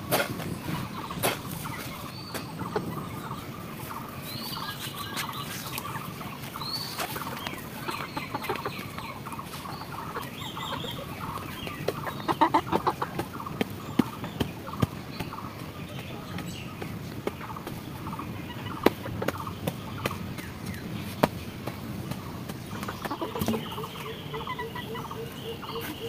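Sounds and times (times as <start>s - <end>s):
hoe digging into soil: 0.0s - 1.7s
chickens clucking: 0.0s - 26.0s.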